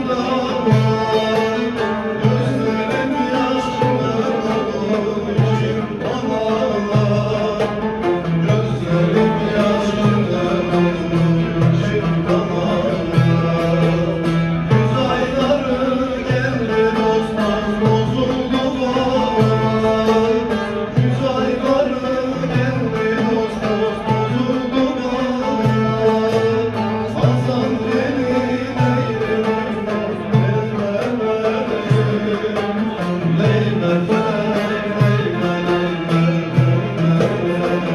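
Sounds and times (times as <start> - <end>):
frame drum: 0.0 - 37.9
long-necked lute playing: 0.0 - 37.9
man singing: 0.0 - 37.9.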